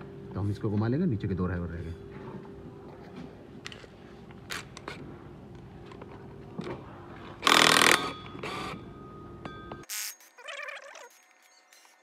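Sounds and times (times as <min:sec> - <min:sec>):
steady low hum: 0:00.0 - 0:09.9
impact wrench burst: 0:07.4 - 0:08.8.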